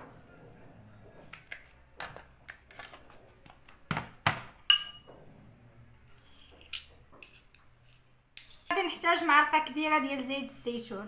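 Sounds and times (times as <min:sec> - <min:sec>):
metal spoons clinking on dish: 0:04.7 - 0:05.1.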